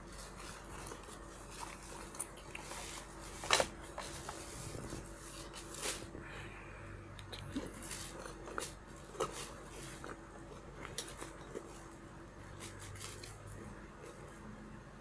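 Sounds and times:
fabric rustling: 0:00.0 - 0:06.2
faint steady hum: 0:00.0 - 0:15.0.

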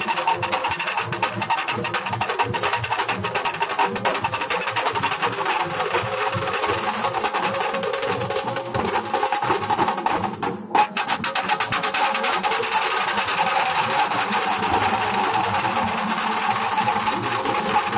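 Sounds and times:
drumming group pounding: 0:00.0 - 0:17.9.

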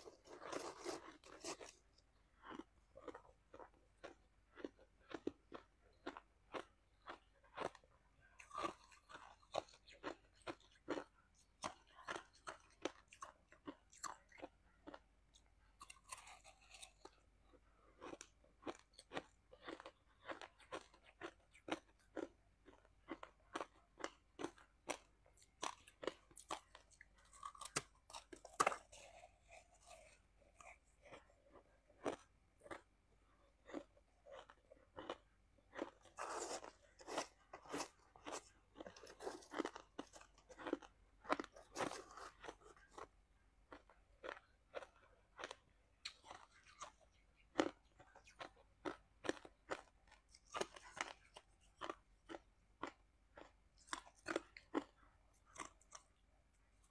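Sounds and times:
crunching shaved ice: 0:00.0 - 0:01.8, 0:33.6 - 0:43.1.

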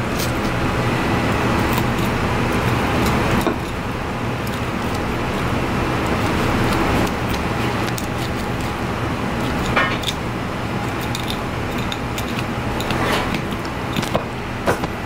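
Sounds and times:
knife scraping fish bone: 0:01.6 - 0:03.8, 0:04.4 - 0:14.2.

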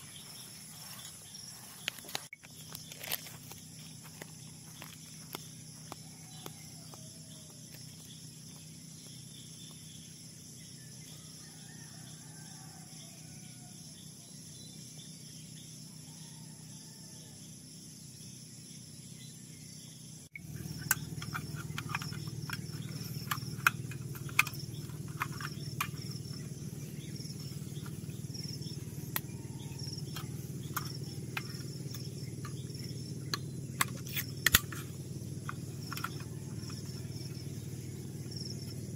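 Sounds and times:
insects chirring: 0:00.0 - 0:38.9
sharp clicks: 0:20.4 - 0:26.6, 0:30.0 - 0:36.9.

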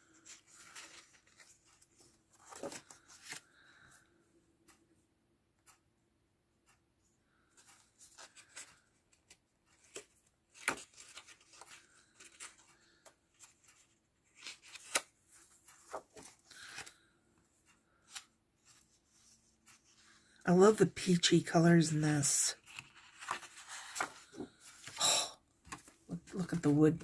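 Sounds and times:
paper rustling: 0:00.0 - 0:03.9, 0:07.5 - 0:20.4, 0:22.5 - 0:25.0, 0:25.6 - 0:27.0
crisp paper snaps: 0:14.4 - 0:15.1.

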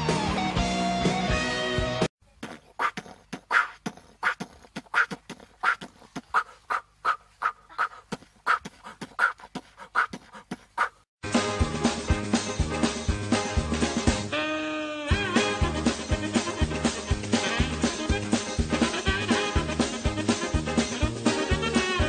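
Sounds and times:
music: 0:00.0 - 0:02.1, 0:11.2 - 0:22.0
goat grunting: 0:02.4 - 0:11.0.

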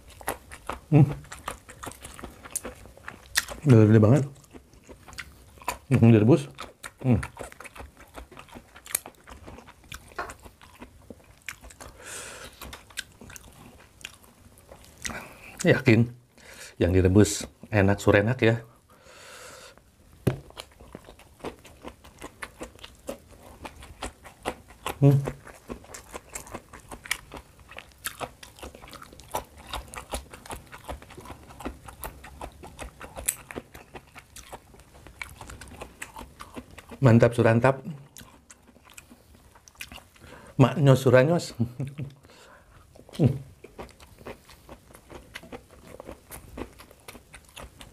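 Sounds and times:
mouth chewing wet clicks: 0:00.0 - 0:15.8, 0:20.5 - 0:37.1
breathy hiss: 0:11.9 - 0:12.6, 0:16.4 - 0:16.8, 0:18.8 - 0:19.8.

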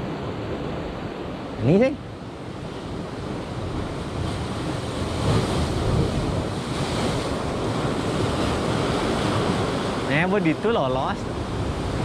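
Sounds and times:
wind buffeting microphone: 0:00.0 - 0:10.3, 0:11.1 - 0:12.0
sea waves breaking on rocks: 0:02.4 - 0:12.0.

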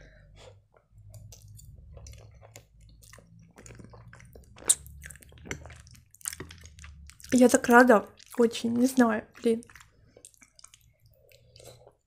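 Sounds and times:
wet chewing and lip smacking: 0:01.0 - 0:12.0.

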